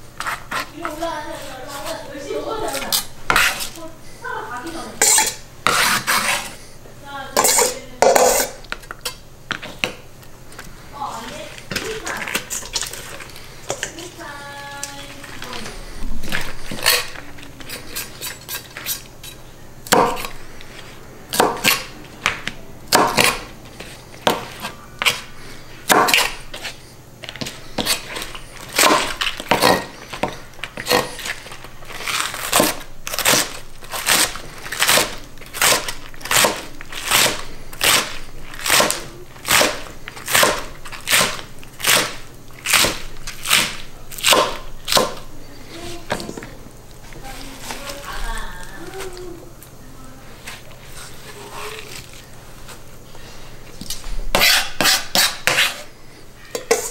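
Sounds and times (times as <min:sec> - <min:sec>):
knife chopping on plastic cutting mat: 0:02.7 - 0:03.8, 0:19.9 - 0:20.3, 0:21.3 - 0:26.7, 0:27.3 - 0:45.3, 0:54.3 - 0:55.8.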